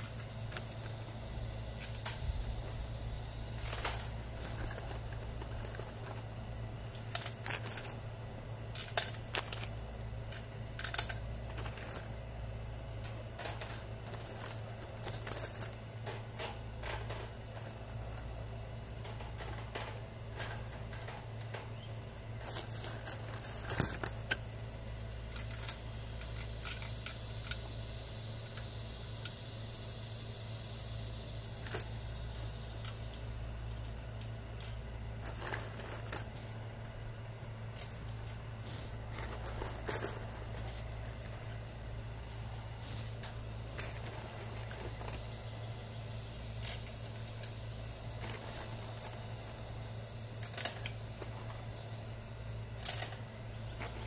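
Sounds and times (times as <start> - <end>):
steady low hum: 0.0 - 54.0
screws clinking on wire mesh: 3.6 - 8.1, 10.3 - 12.1, 13.0 - 18.3, 19.0 - 24.4, 34.6 - 36.4, 39.0 - 41.6.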